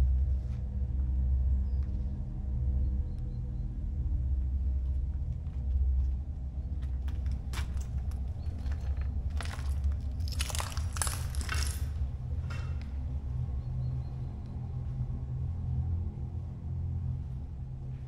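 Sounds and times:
low droning ambient music: 0.0s - 18.0s
crackling and crunching noises: 6.8s - 13.2s.

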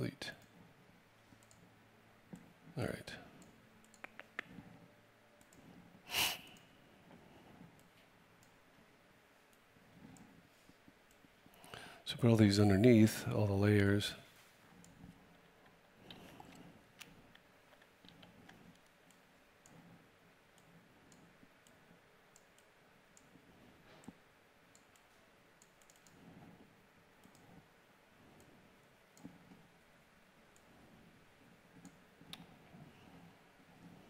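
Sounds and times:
computer mouse and keyboard clicks: 1.3s - 1.7s, 3.4s - 4.8s, 14.8s - 20.0s, 20.6s - 27.7s, 31.7s - 34.0s.

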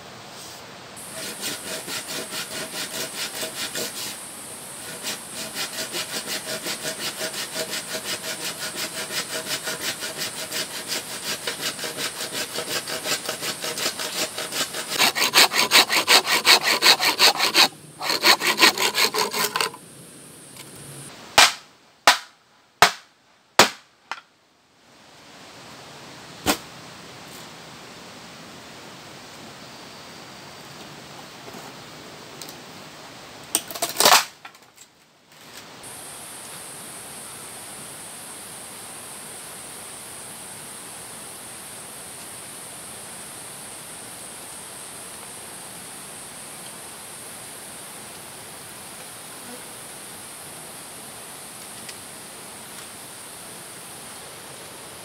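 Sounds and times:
hand saw cutting bamboo: 1.0s - 4.2s, 4.8s - 19.8s
sharp knocks: 21.4s - 24.2s.

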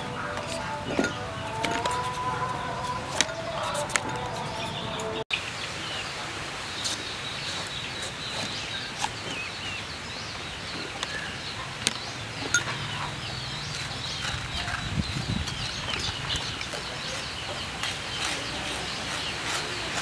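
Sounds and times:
chickens clucking: 0.0s - 5.3s, 10.7s - 20.0s
birds chirping: 0.0s - 20.0s
outdoor hiss: 5.1s - 12.5s.

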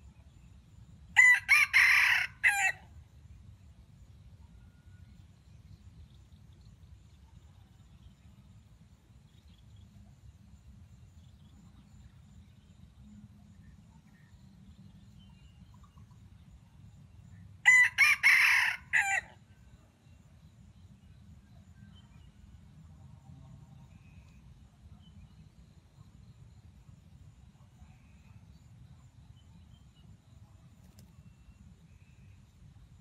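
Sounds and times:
faint low hum: 0.0s - 33.0s
rooster crowing: 1.2s - 2.8s, 17.6s - 19.4s.

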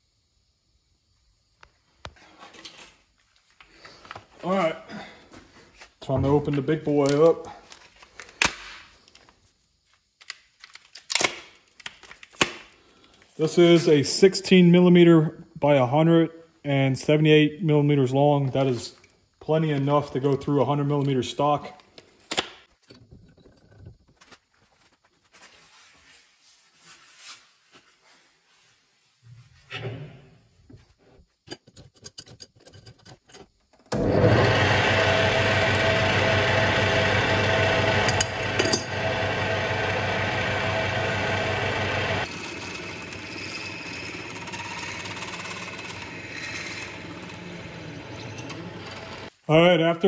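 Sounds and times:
lathe drilling into metal: 33.9s - 49.3s.

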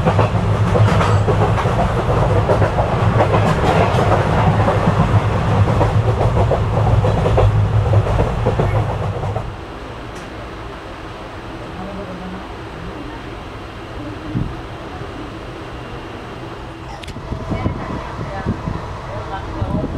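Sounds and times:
clickety-clack of train wheels: 0.0s - 9.5s, 10.1s - 10.4s
train rumble: 0.0s - 19.9s.

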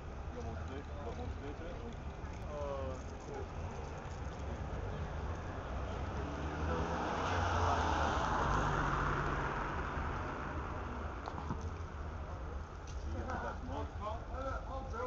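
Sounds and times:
car driving past: 4.8s - 11.2s.

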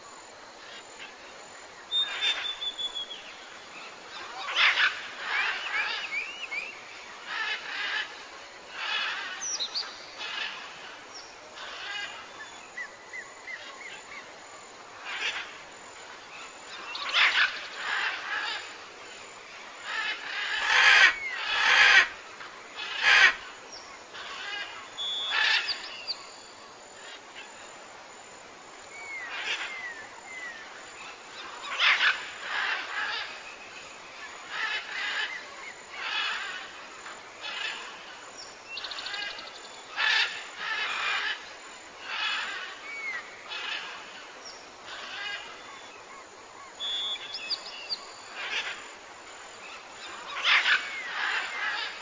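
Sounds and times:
bird whistles: 1.9s - 3.2s, 46.8s - 47.6s
birds chirping and calling: 4.1s - 10.9s, 19.8s - 22.2s, 24.1s - 26.3s, 29.1s - 38.2s, 38.8s - 45.9s, 49.6s - 52.0s.

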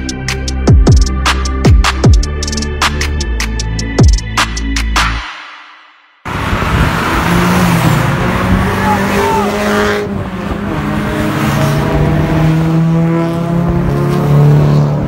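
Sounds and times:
road and tyre noise: 6.0s - 15.0s
car engines revving: 6.2s - 15.0s.

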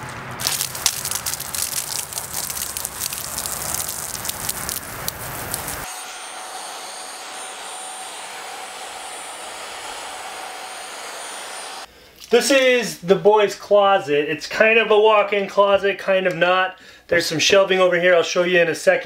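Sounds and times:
hose water spattering on rug: 0.4s - 5.9s
carpet cleaner motor whining: 6.0s - 11.9s.

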